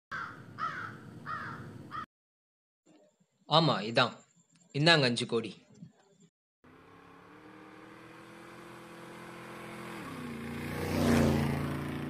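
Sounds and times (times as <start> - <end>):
vehicle engine passing: 6.7 - 12.0.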